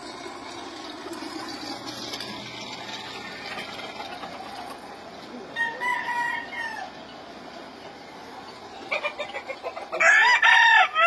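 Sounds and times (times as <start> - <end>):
steady background noise: 0.0 - 11.0
rooster crowing: 5.5 - 7.0, 9.9 - 11.0.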